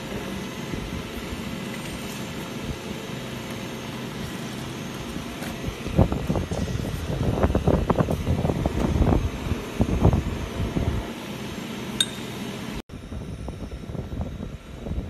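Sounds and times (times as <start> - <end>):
sharp metallic tick: 12.0 - 12.3.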